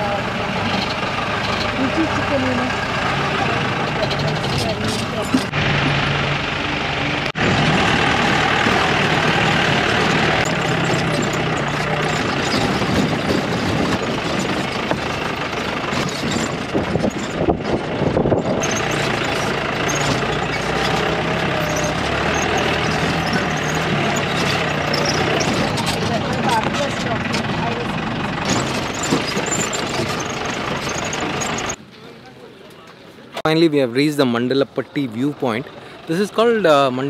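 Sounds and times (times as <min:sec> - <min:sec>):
jeep engine under load: 0:00.0 - 0:33.5
vehicle body knocks and jolts: 0:07.7 - 0:27.8, 0:28.4 - 0:31.7.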